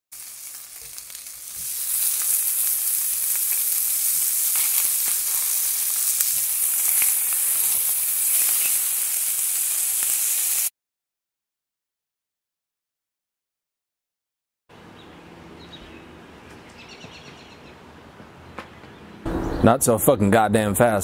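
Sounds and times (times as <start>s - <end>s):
food sizzling in a pan: 0.1s - 10.7s.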